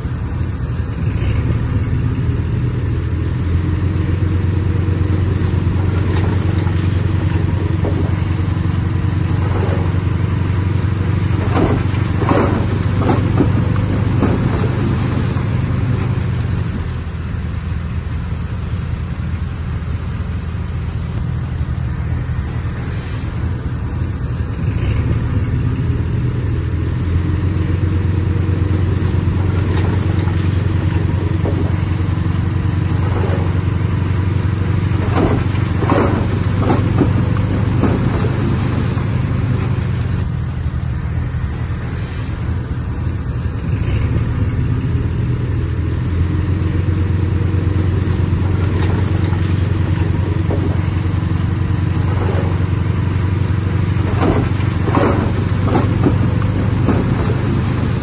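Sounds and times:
diesel engine running: 0.0s - 58.0s
rattle: 3.1s - 16.9s, 27.3s - 40.3s, 46.6s - 58.0s.

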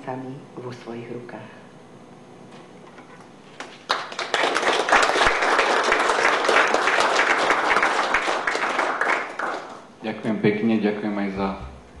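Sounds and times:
crowd applauding: 3.6s - 9.9s.

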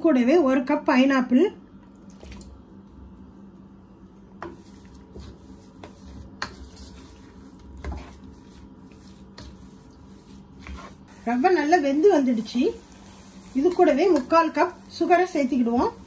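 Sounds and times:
spatula stirring soft food: 4.3s - 16.0s
spatula tapping pan: 4.4s - 11.6s, 12.5s - 16.0s.

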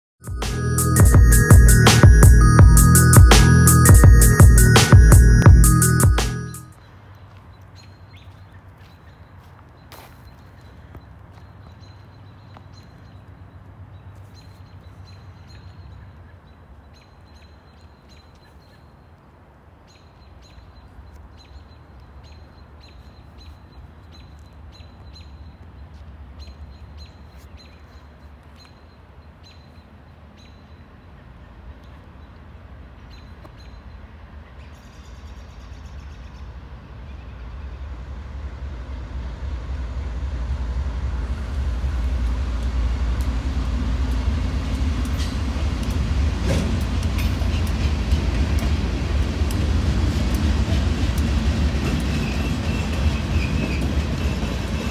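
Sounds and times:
diesel locomotives rumbling: 0.2s - 6.8s, 30.2s - 54.9s.

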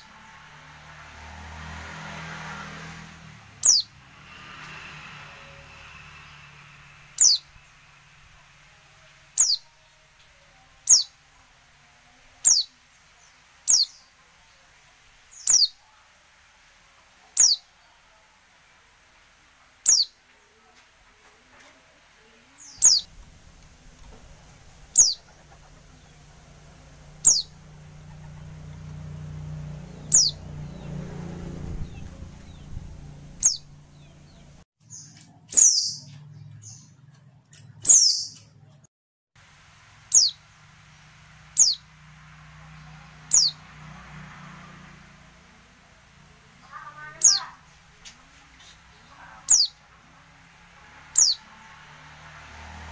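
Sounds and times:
bird high downward calls: 3.6s - 4.0s, 7.1s - 7.8s, 9.4s - 9.9s, 10.8s - 11.2s, 12.4s - 14.1s, 15.3s - 15.8s, 17.4s - 17.7s, 19.8s - 20.2s, 22.6s - 37.0s, 40.1s - 40.4s, 41.5s - 41.9s, 42.8s - 43.7s, 46.6s - 47.8s, 48.6s - 49.8s, 51.1s - 51.5s
low hum: 23.0s - 34.6s.

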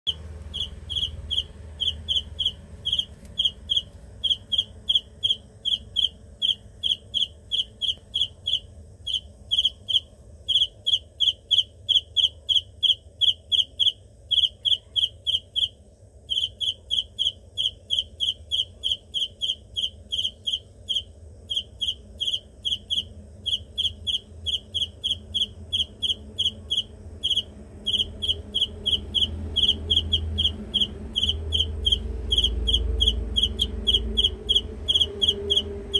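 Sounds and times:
cricket chirping: 0.1s - 35.9s.

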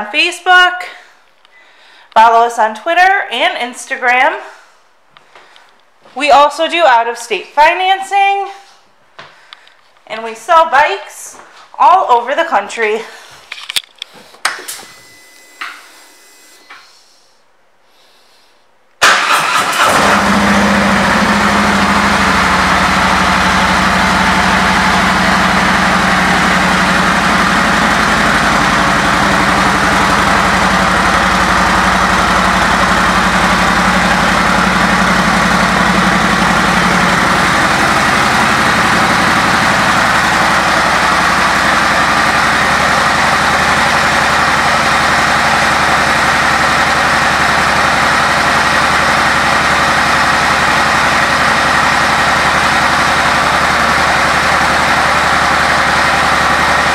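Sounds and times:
short beep: 14.7s - 17.0s
motorcycle engine starting and idling: 19.0s - 56.9s.

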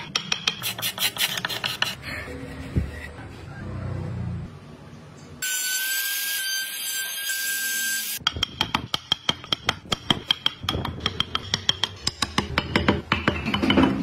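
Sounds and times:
hammer tapping metal chisel: 8.2s - 14.0s.

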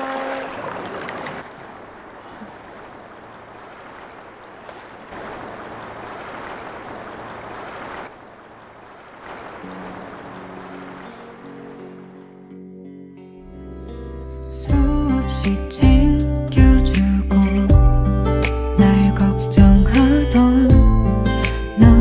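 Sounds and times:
waves washing: 0.0s - 12.7s
wind: 0.0s - 16.6s.

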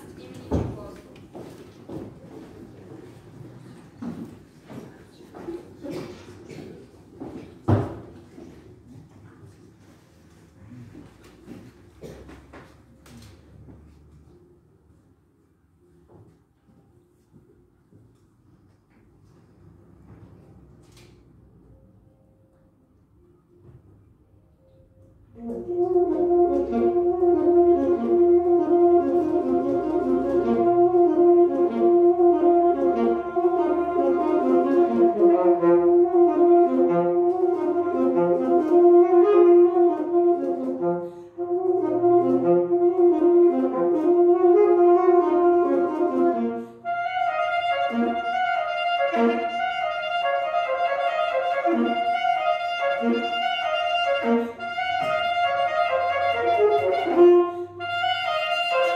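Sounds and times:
held accompaniment notes: 24.6s - 58.9s
alto saxophone melody: 25.4s - 58.9s.

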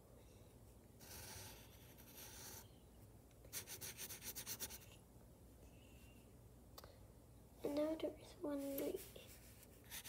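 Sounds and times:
pencil scratching on paper: 1.0s - 2.7s, 3.5s - 4.9s, 9.0s - 10.0s.

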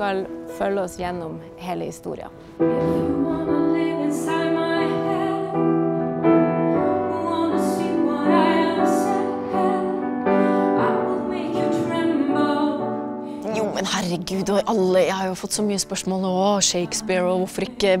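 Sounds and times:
piano chords: 0.0s - 17.8s
woman singing: 2.7s - 5.9s, 6.8s - 18.0s.

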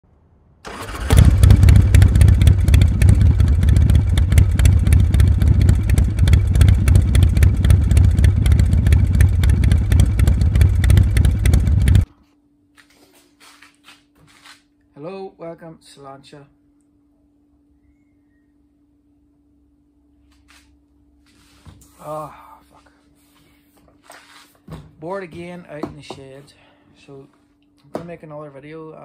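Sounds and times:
motorcycle engine running: 0.7s - 12.1s.

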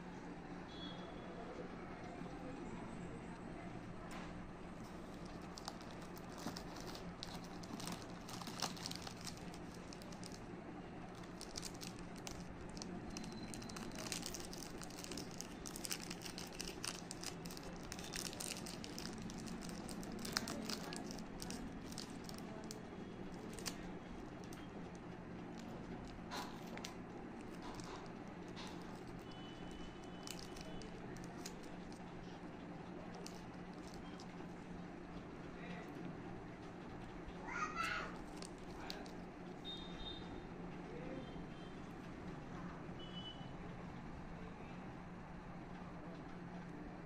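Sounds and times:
wrapper crinkling and crackling: 4.8s - 34.6s, 38.1s - 39.3s.

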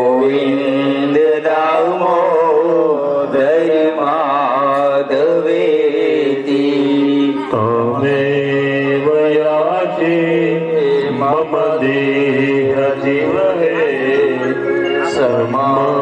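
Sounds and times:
man singing a devotional chant: 0.0s - 16.0s
sustained keyboard chords: 11.2s - 16.0s.

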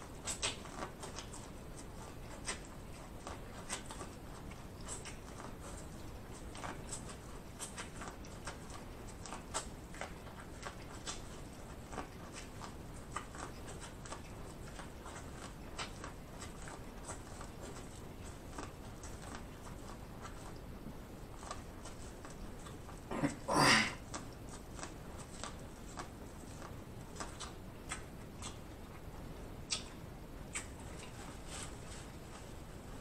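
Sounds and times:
wet mouth clicks and smacks: 27.2s - 28.9s, 29.6s - 31.2s.

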